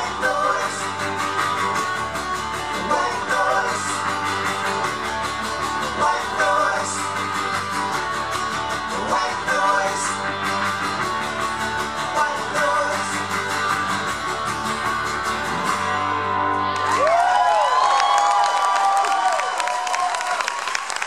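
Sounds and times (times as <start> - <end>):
live band with guitars: 0.0 - 19.4
audience whooping and cheering: 16.2 - 21.0.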